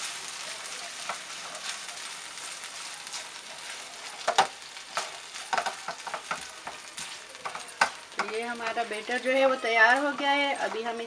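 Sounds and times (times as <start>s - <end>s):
chicken sizzling in a frying pan: 0.0s - 11.0s
spatula scraping and knocking pan: 2.8s - 11.0s.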